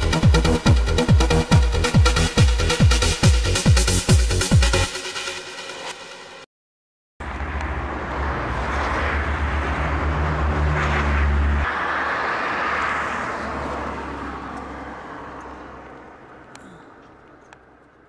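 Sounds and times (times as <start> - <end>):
car driving on road: 7.2 - 18.0.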